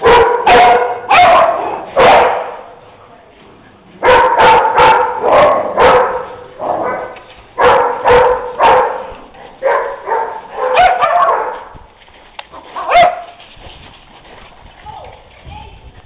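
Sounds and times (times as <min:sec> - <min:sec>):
dogs barking: 0:00.0 - 0:02.7, 0:04.0 - 0:11.7, 0:12.5 - 0:13.4.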